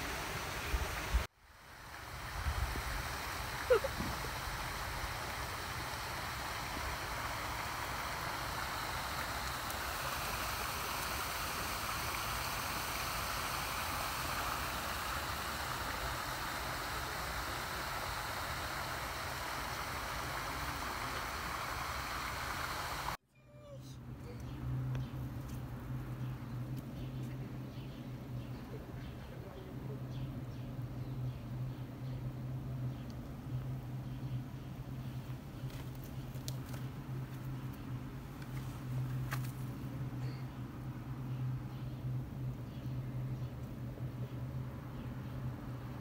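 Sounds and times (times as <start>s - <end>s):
steady rushing noise: 0.0s - 23.2s.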